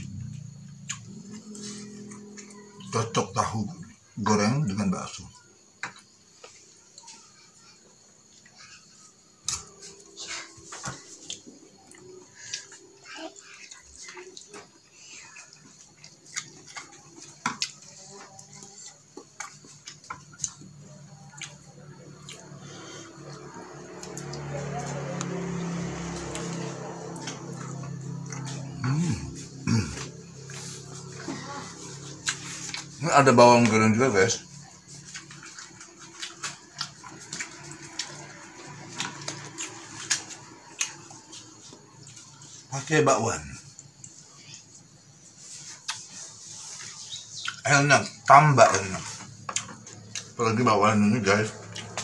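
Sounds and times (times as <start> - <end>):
faint low hum: 0.0 - 52.0
chewing clicks and smacks: 0.2 - 1.4, 15.4 - 22.6, 35.0 - 42.5, 45.8 - 46.2, 47.4 - 47.7, 49.4 - 50.4, 51.6 - 52.0.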